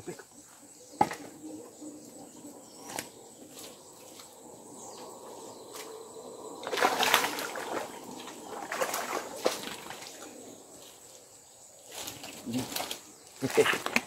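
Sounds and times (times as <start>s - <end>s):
fish splashing in water: 6.6s - 10.3s.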